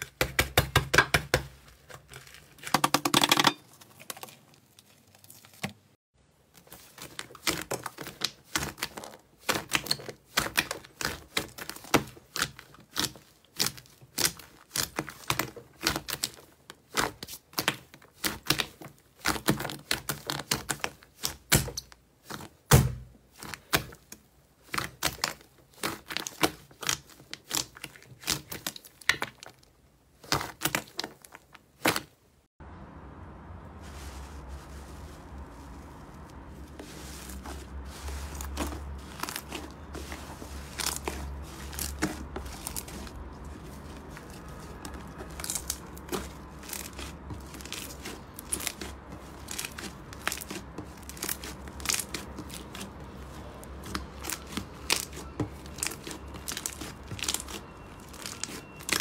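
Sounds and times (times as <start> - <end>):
slime squished by hand: 34.7 - 59.0.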